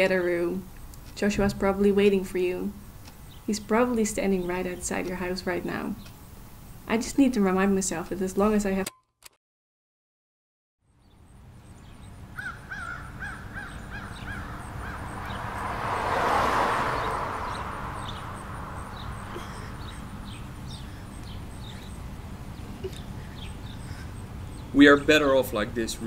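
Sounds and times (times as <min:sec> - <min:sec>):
small birds chirping: 0:00.0 - 0:08.8, 0:10.9 - 0:26.0
crow cawing: 0:12.4 - 0:15.7, 0:17.0 - 0:22.0, 0:22.8 - 0:24.6
broad rushing noise: 0:14.6 - 0:24.4.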